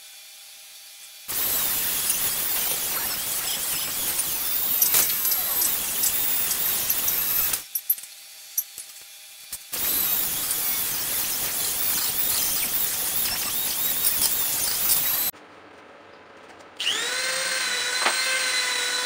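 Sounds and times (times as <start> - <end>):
rotary tool wire brush whine: 1.2 - 15.3.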